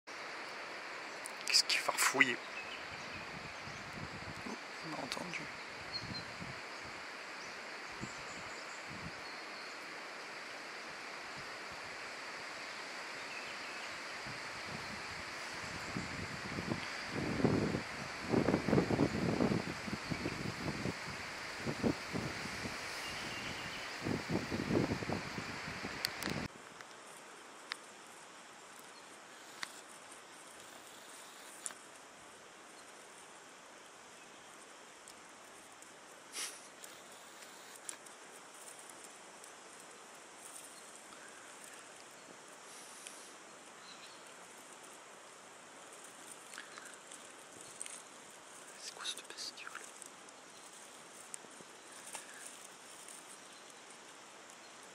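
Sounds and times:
steady outdoor hiss: 0.1s - 54.9s
rustling in leaf litter: 12.6s - 54.9s
twigs snapping: 49.8s - 53.8s.

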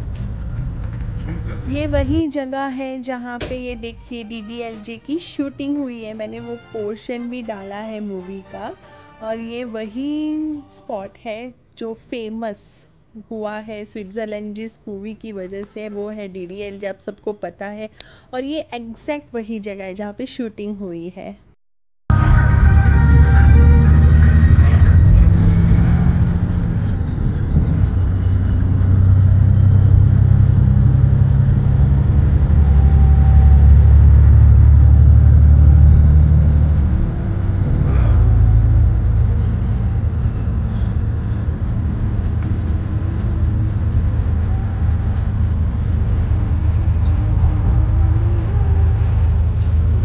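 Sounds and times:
bus engine and road rumble: 0.0s - 2.4s, 22.1s - 50.0s.

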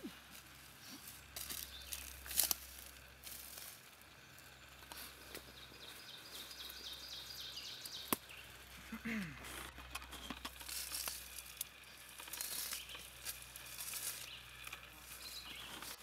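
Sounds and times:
rustling in leaf litter: 0.0s - 6.8s, 8.7s - 16.0s.

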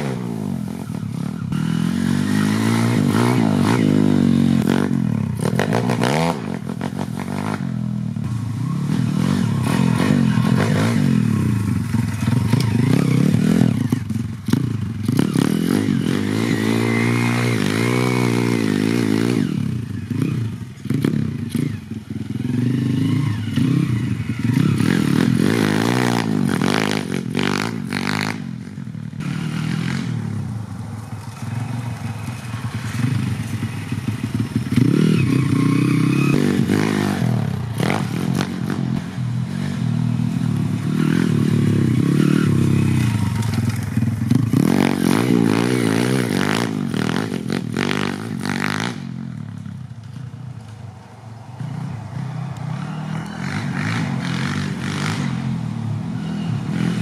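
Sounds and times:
motorbike engine revving: 0.0s - 50.7s, 51.5s - 57.0s.

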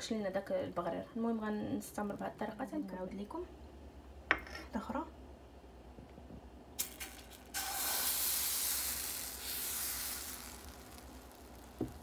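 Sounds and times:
batter hissing in hot pan: 6.8s - 12.0s.

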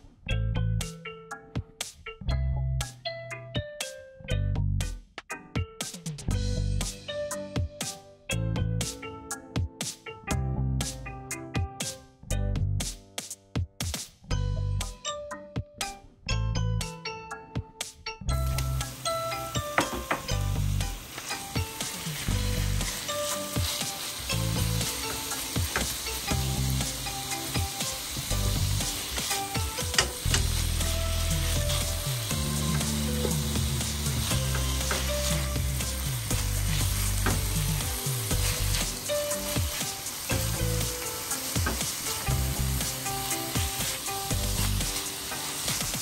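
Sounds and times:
garlic sizzling in butter: 18.4s - 46.0s
spatula scraping a pan: 21.1s - 26.0s.

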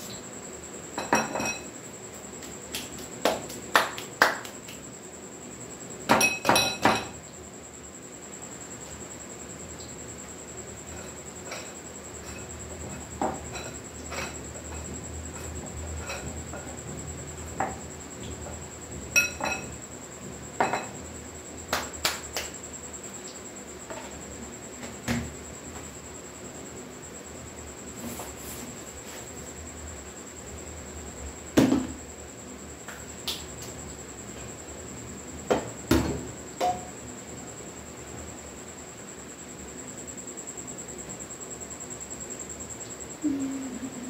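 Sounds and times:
metal spoon clinking on glass bowl: 1.0s - 1.7s, 19.2s - 19.7s.

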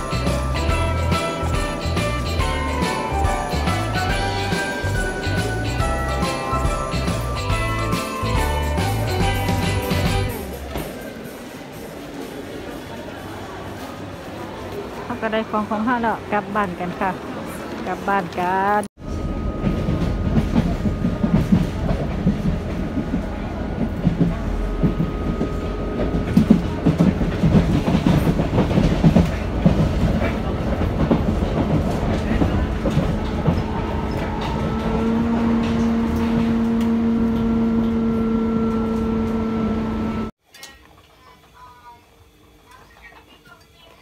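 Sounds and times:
train whine: 0.0s - 40.3s
train wheels rumbling and clattering: 16.0s - 40.3s.

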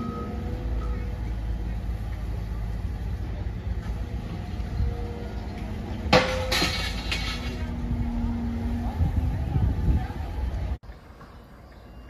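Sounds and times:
excavator diesel engine: 0.0s - 10.8s
debris clattering: 6.1s - 7.8s.

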